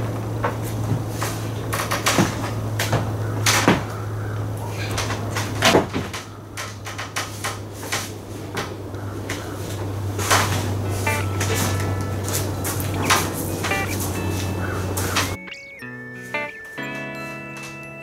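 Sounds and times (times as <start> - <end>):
steady low hum: 0.0 - 15.9
wooden boards knocking and clattering: 5.0 - 9.5.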